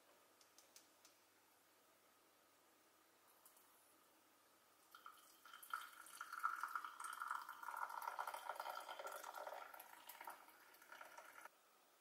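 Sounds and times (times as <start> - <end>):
water pouring into glass mug: 4.8 - 11.5.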